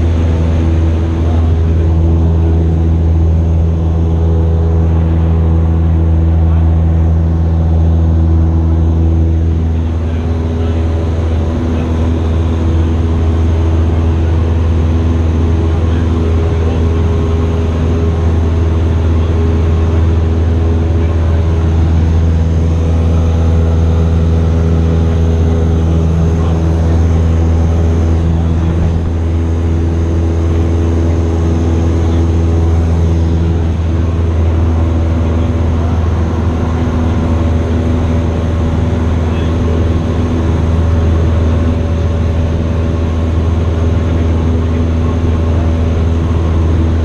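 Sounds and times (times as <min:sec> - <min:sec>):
plane engine droning in cabin: 0:00.0 - 0:47.0.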